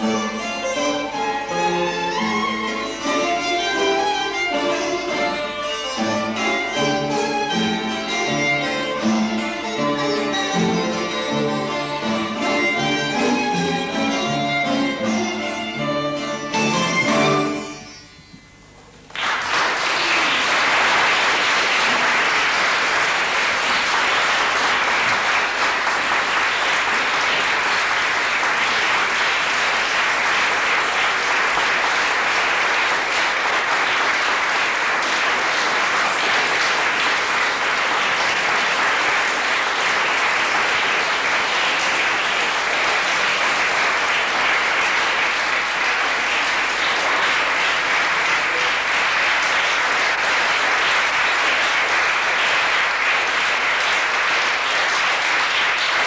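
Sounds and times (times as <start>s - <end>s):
audience applauding: 19.1s - 56.0s.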